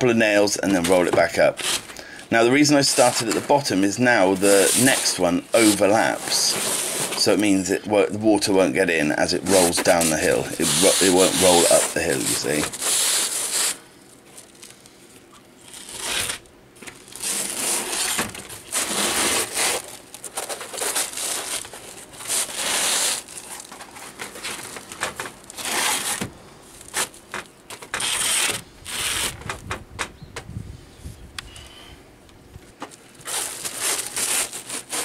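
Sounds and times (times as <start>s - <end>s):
roofing felt crinkling and scraping: 0.0s - 29.8s, 32.6s - 35.0s.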